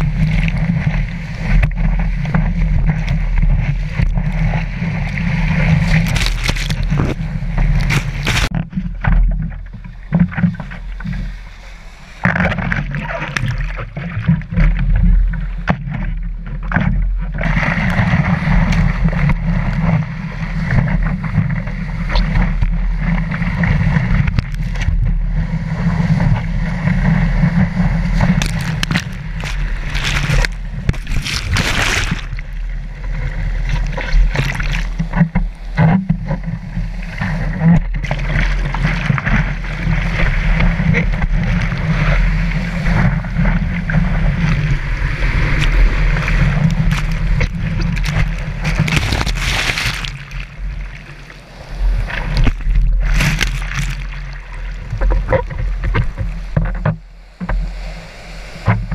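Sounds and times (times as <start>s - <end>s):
low rumble of water: 0.0s - 58.9s
wind buffeting the camera: 0.0s - 58.9s
whitewater rushing and splashing: 25.5s - 35.8s, 36.8s - 56.6s.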